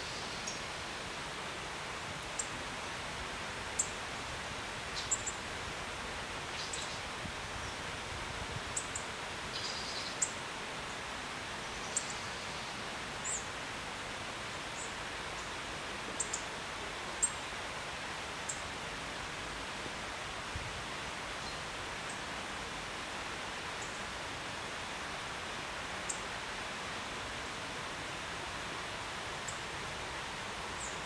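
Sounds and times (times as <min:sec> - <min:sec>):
small waterfall rushing: 0:00.0 - 0:31.0.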